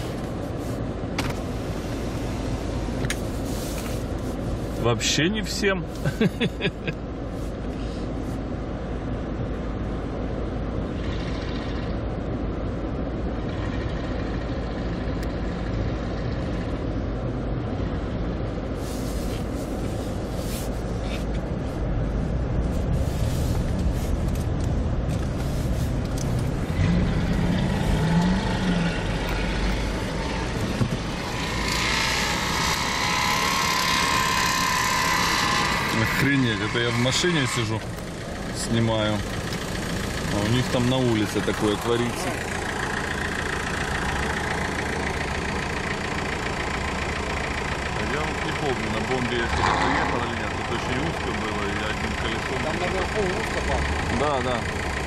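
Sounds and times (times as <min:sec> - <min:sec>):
off-road vehicle engines running: 0:00.0 - 0:55.0
engine revving: 0:25.1 - 0:55.0
loud hissing with whine: 0:28.5 - 0:37.8.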